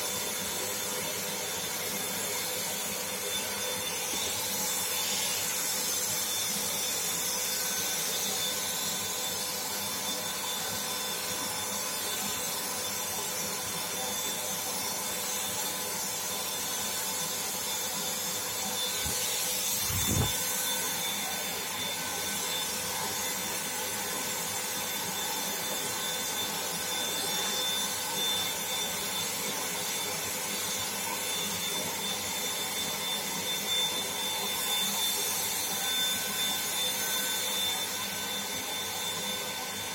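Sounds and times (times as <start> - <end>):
motor whine: 17.9 - 27.3.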